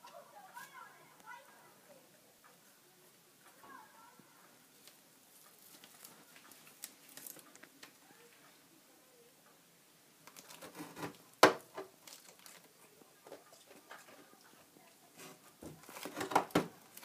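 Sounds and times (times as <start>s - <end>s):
plastic bags crinkling: 5.3s - 7.7s, 10.3s - 12.9s, 15.7s - 17.0s.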